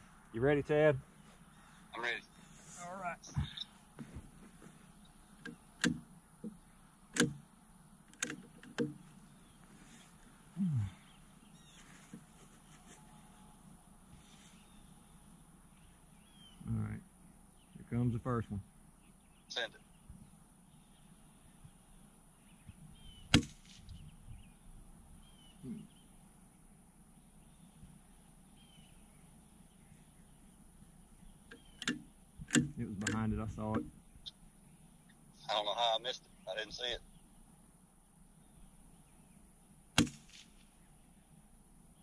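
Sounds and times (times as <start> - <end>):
rifle shot: 23.3 - 23.9, 40.0 - 40.6.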